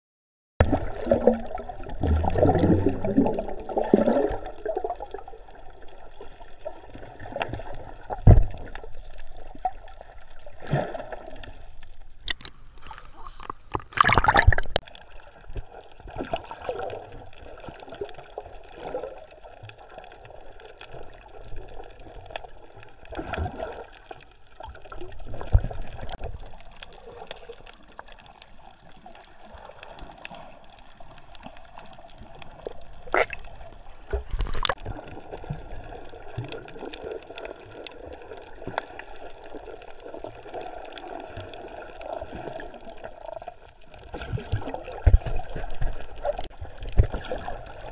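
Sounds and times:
underwater gurgling and bubbling: 0:00.6 - 0:47.9
bubble bursts: 0:13.9 - 0:14.8
loud splash: 0:13.9 - 0:14.8.

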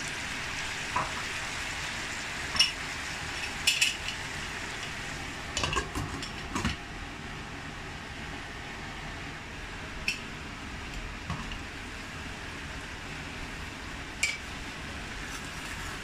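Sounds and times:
potatoes sizzling in oil: 0:00.0 - 0:06.5.

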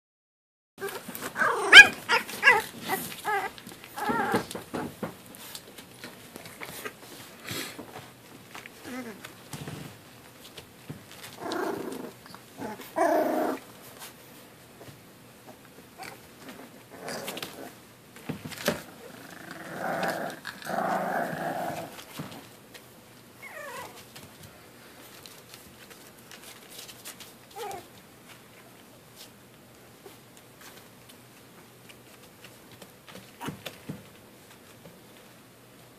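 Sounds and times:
puppies yipping and squealing: 0:00.8 - 0:04.4
puppy growling: 0:00.8 - 0:04.8, 0:08.8 - 0:09.3, 0:11.3 - 0:13.7, 0:16.0 - 0:17.8, 0:18.6 - 0:22.5, 0:23.4 - 0:24.0
puppy whining: 0:00.8 - 0:04.8, 0:08.8 - 0:09.3, 0:11.2 - 0:13.7, 0:15.9 - 0:17.8, 0:23.4 - 0:24.1, 0:27.5 - 0:28.0, 0:33.2 - 0:33.9
paws scuffling: 0:00.8 - 0:13.0, 0:21.8 - 0:35.5.

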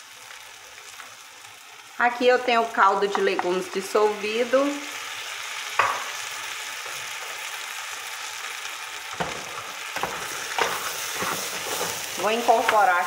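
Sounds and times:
food sizzling in metal pot: 0:00.0 - 0:13.0
spoon scraping pot: 0:10.0 - 0:12.9.

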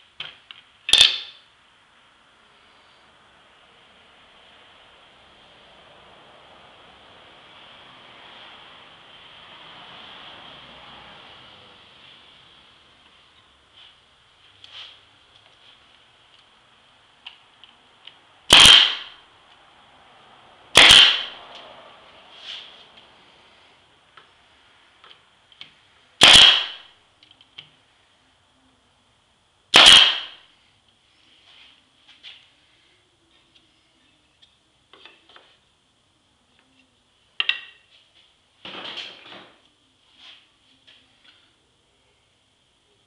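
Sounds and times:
pneumatic nailer firing: 0:18.5 - 0:19.2, 0:20.7 - 0:21.4, 0:26.2 - 0:26.8, 0:29.7 - 0:30.4.

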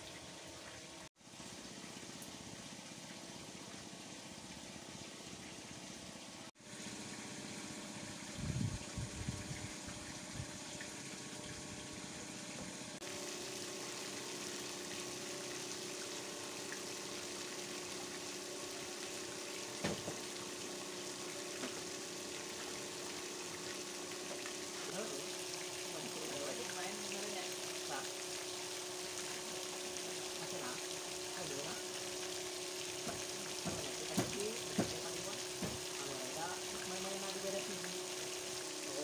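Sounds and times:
fountain water spraying and splashing: 0:13.0 - 0:39.0.

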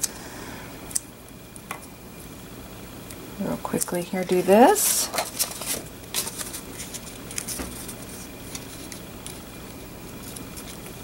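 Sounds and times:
faint steady hum: 0:00.0 - 0:11.0
paper rustling: 0:04.8 - 0:09.5, 0:10.1 - 0:11.0.

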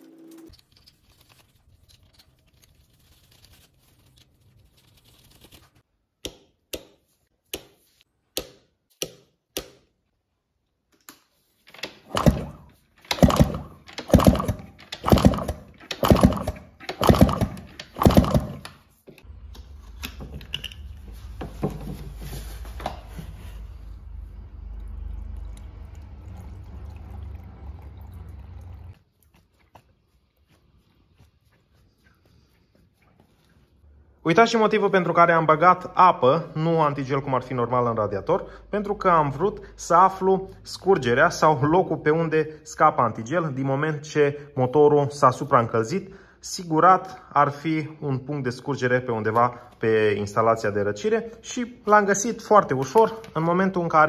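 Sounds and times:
engine being kicked over: 0:12.1 - 0:18.6
water pouring into radiator: 0:24.6 - 0:29.0.

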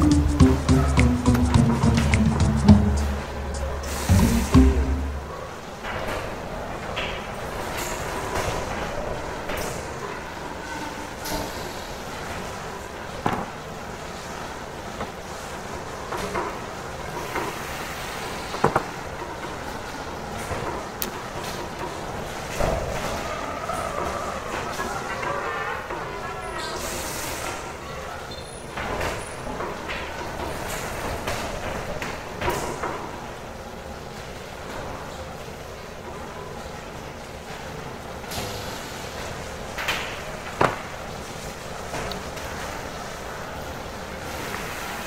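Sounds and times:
room noise hum: 0:00.0 - 0:10.0
machinery and ventilation hum: 0:00.0 - 0:45.0.

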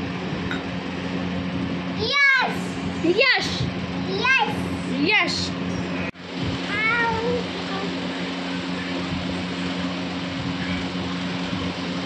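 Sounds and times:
air cooler humming: 0:00.0 - 0:12.0.

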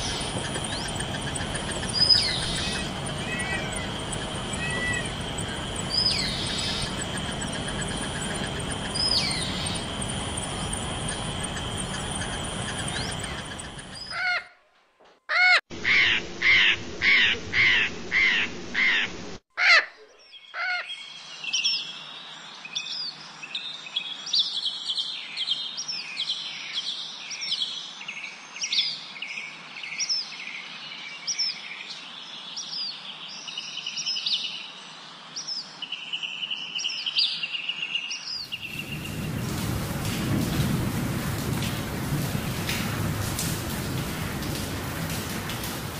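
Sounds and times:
high hum: 0:00.0 - 0:14.0
steady hiss: 0:00.0 - 0:14.0, 0:38.4 - 0:45.9
birds chirping: 0:00.0 - 0:14.4, 0:36.4 - 0:45.9
small birds chirping: 0:00.0 - 0:14.4, 0:35.4 - 0:40.7
bird calls rising and falling: 0:00.0 - 0:14.5.

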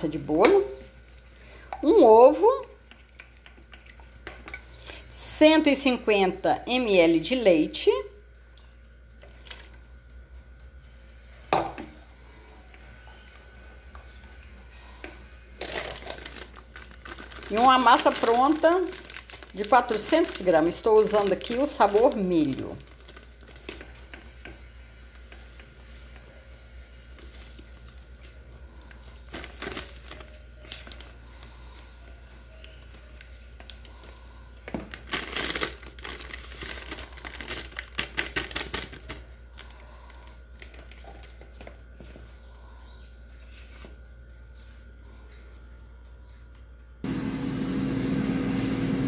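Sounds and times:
plastic bag crinkling: 0:15.6 - 0:24.0, 0:28.9 - 0:31.2, 0:34.8 - 0:39.8.

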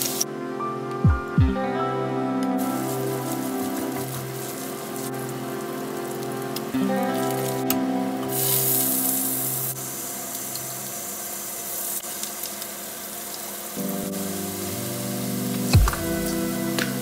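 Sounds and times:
background music: 0:00.0 - 0:11.0, 0:13.8 - 0:17.0
butter sizzling in a frying pan: 0:08.3 - 0:17.0.

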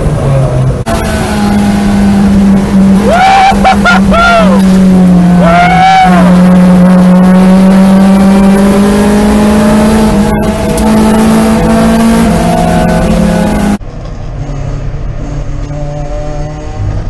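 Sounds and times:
car engine at high revs: 0:00.0 - 0:17.0.

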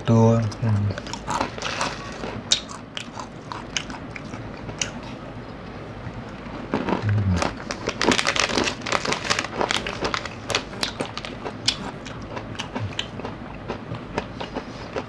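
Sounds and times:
chewing: 0:00.6 - 0:15.0
plastic wrapper crinkling: 0:01.1 - 0:02.4, 0:07.4 - 0:11.5.

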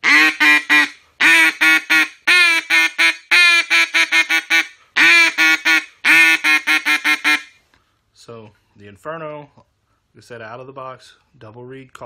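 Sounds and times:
duck call raspy quacks: 0:00.0 - 0:07.6.

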